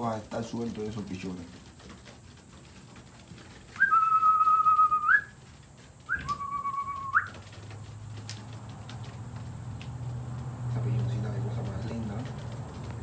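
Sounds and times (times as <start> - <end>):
person whistling: 3.8 - 5.3, 6.1 - 7.3.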